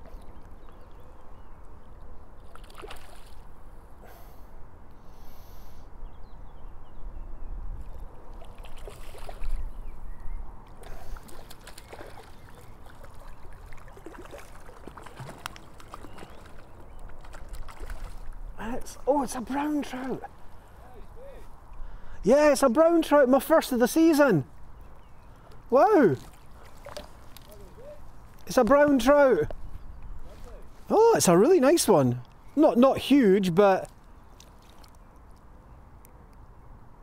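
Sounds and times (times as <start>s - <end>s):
water lapping and splashing: 2.4s - 3.6s, 7.8s - 9.8s, 10.7s - 20.8s, 24.6s - 28.4s, 33.8s - 35.5s.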